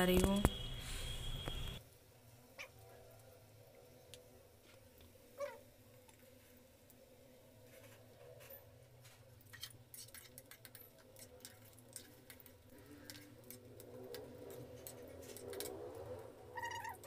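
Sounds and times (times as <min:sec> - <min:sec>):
fritters crackling in oil: 0:08.9 - 0:17.0
ladle stirring: 0:09.5 - 0:16.0.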